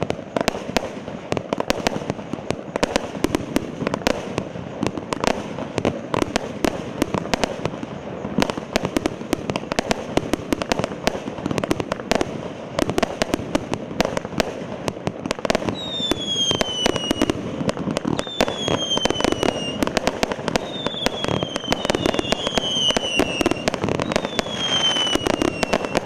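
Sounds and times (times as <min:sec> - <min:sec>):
fireworks cracks and pops: 0:00.0 - 0:26.0
high falling firework whistle: 0:15.6 - 0:17.4, 0:18.1 - 0:26.0.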